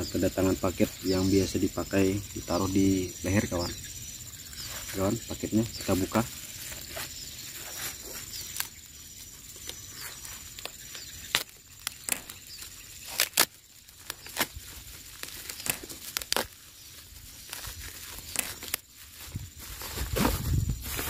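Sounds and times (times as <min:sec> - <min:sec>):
plastic wrapping tearing and crinkling: 0:06.4 - 0:09.0, 0:09.6 - 0:21.0.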